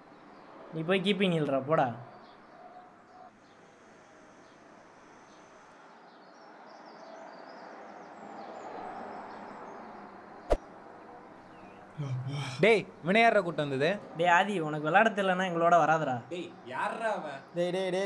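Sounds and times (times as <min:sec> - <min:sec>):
faint bird chirps: 0:02.0 - 0:03.8, 0:11.4 - 0:12.6.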